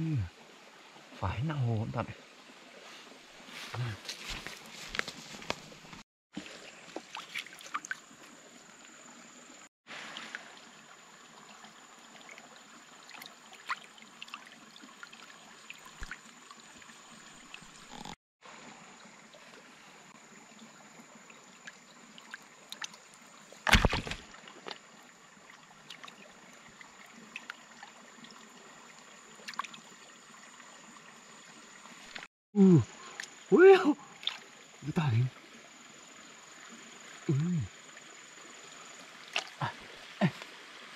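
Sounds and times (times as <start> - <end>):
water trickling: 0.1 - 32.3, 33.0 - 40.9
small splashes: 3.5 - 8.4, 9.9 - 16.8, 21.6 - 28.3, 29.4 - 29.9, 34.1 - 34.6, 39.2 - 40.6.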